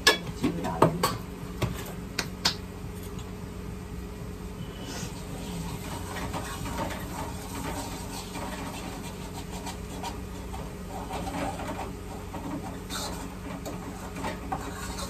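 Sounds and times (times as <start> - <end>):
low electrical hum: 0.0 - 15.0
spatula scraping metal pan: 4.6 - 15.0.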